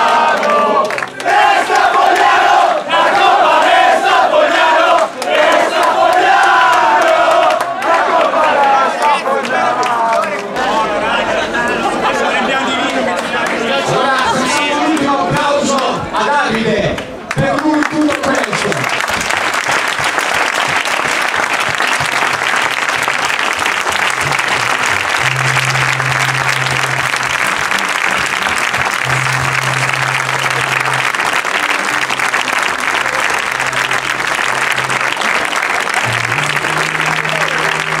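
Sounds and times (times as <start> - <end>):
crowd applauding: 0.0 - 15.9, 16.5 - 38.0
music with bass line: 24.2 - 38.0.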